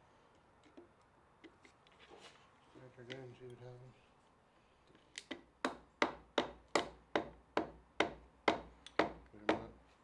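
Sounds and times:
wooden handle tapping piston: 0:05.2 - 0:09.7.

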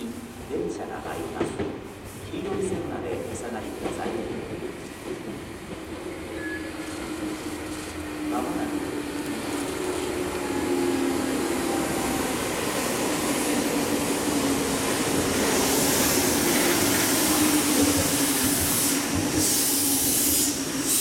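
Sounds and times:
train wheels humming on rails: 0:00.0 - 0:21.0
high hiss: 0:14.8 - 0:21.0.

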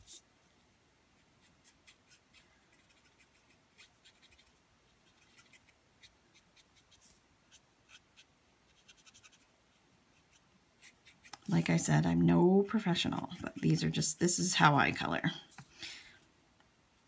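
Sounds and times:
marker nib scratching on paper: 0:01.2 - 0:11.6.

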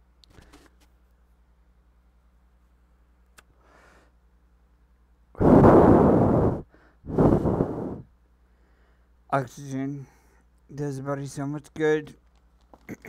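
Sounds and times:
man breathing deeply: 0:05.4 - 0:09.1.

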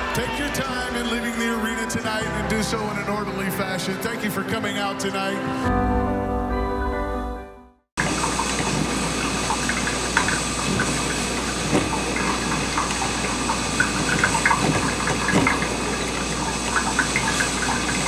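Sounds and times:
soft music: 0:00.0 - 0:08.8
coffee maker gurgling and popping: 0:08.0 - 0:18.0
coffee maker hum and hiss: 0:08.0 - 0:18.0.

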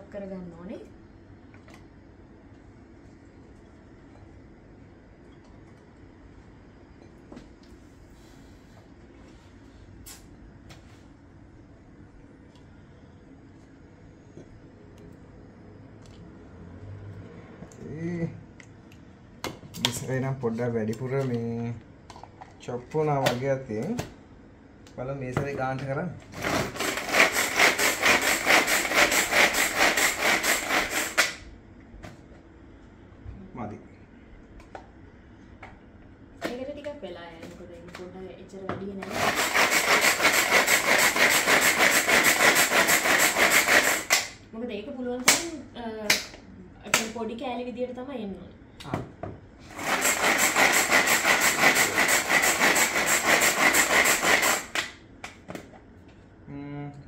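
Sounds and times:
pull-cord food chopper whirring: 0:26.3 - 0:31.4, 0:39.0 - 0:44.4, 0:49.7 - 0:55.0.

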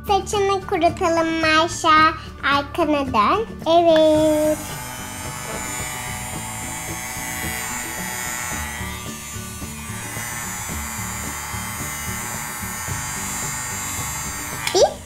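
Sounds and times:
background music: 0:00.0 - 0:15.0
toy hair dryer whirring: 0:04.0 - 0:15.0.

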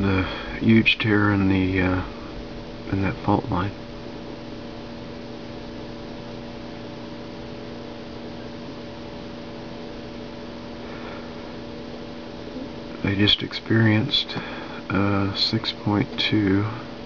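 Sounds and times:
low even hum: 0:00.0 - 0:17.0
steady hiss: 0:09.3 - 0:17.0.

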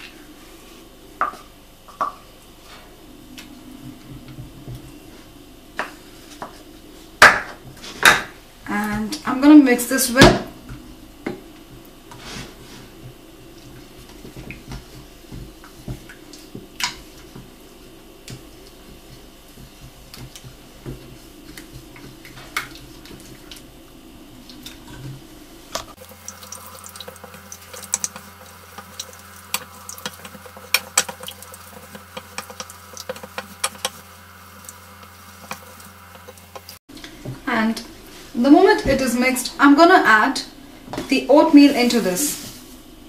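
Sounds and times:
wooden spoon stirring liquid: 0:26.0 - 0:36.8
spoon scraping a pan: 0:26.4 - 0:36.8.

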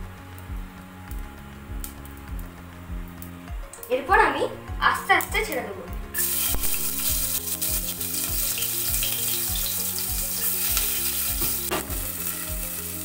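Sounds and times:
vegetables sizzling in hot oil: 0:06.1 - 0:13.0.

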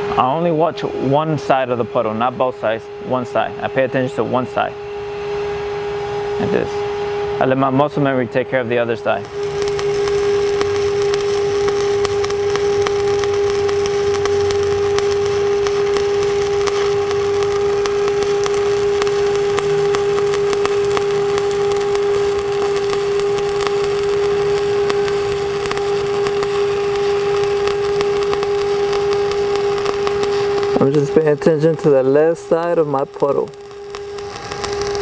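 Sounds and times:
steady high hum: 0:00.0 - 0:35.0
welding arc crackling: 0:07.4 - 0:35.0.

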